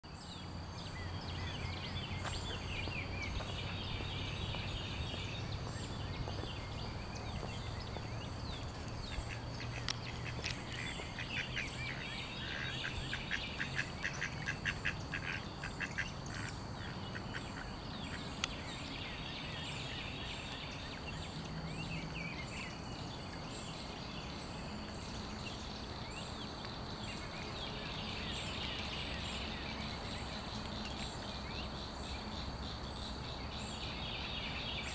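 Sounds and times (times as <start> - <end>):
ducks quacking: 9.1 - 17.8.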